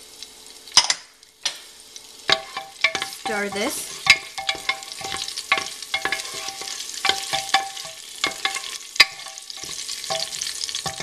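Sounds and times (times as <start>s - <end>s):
oil sizzling: 0.0s - 11.0s
wooden spoon scraping metal pot: 2.3s - 11.0s.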